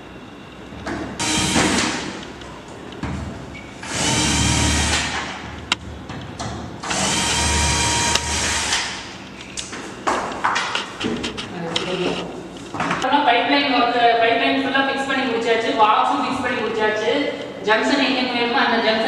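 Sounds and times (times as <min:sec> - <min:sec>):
electric drill running: 0:01.2 - 0:02.0, 0:03.8 - 0:05.2, 0:06.8 - 0:09.0.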